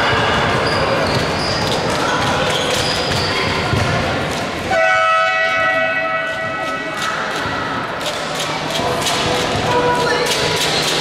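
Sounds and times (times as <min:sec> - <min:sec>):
sneaker squeaks: 0:00.0 - 0:04.2
basketball bouncing: 0:00.0 - 0:04.3
scoreboard horn blast: 0:04.7 - 0:06.6
voices: 0:05.5 - 0:11.0.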